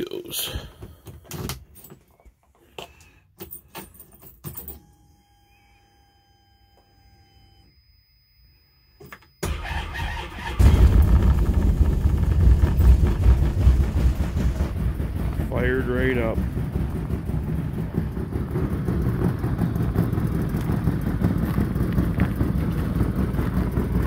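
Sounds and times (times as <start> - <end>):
faint steady tones: 3.4 - 9.6
engine cranking and starting: 9.4 - 15.0
engine fast idle: 9.4 - 24.0.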